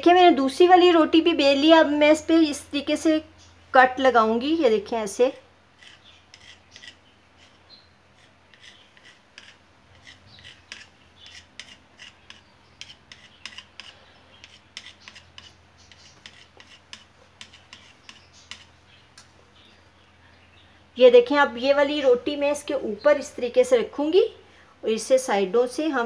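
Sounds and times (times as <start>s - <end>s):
knife cutting dough on worktop: 5.8s - 18.8s.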